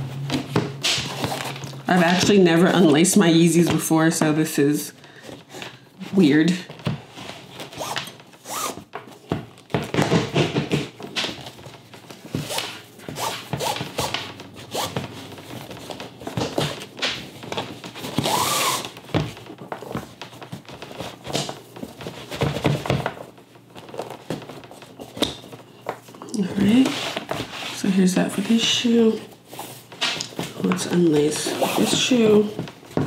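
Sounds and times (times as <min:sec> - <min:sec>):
shoelaces scraping through eyelets: 0:07.5 - 0:08.9, 0:12.4 - 0:15.4, 0:18.2 - 0:19.0.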